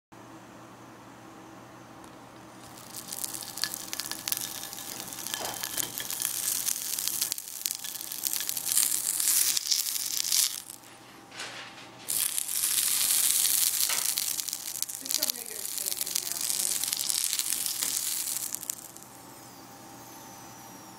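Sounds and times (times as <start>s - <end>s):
hot oil sizzling and spitting: 2.6s - 10.9s, 12.1s - 19.2s.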